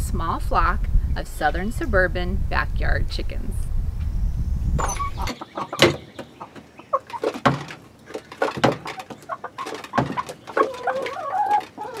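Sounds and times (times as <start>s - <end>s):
hens clucking: 4.8s - 12.0s
beaks pecking taps: 5.2s - 12.0s.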